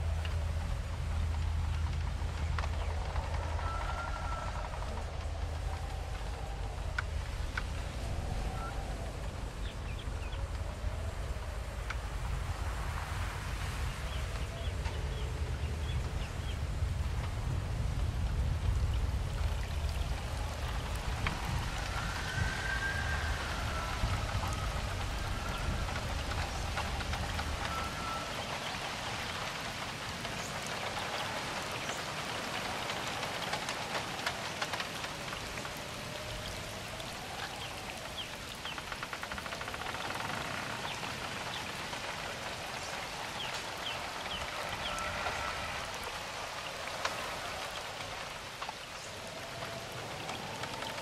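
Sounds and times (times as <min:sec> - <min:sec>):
rain drops ticking: 0:00.0 - 0:51.0.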